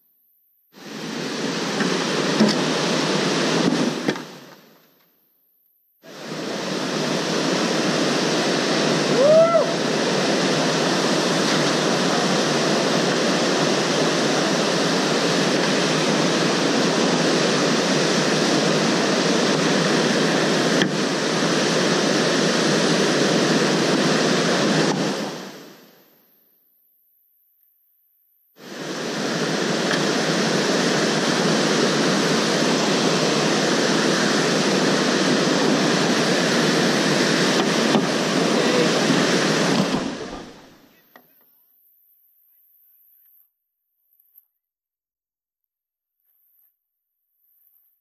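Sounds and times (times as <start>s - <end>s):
whitewater rapids rushing: 6.1s - 25.4s, 28.6s - 40.7s.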